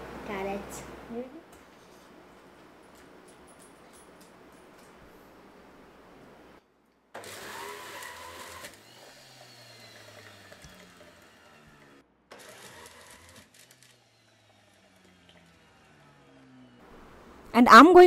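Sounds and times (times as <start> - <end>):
juicer motor whirring: 7.2 - 16.9.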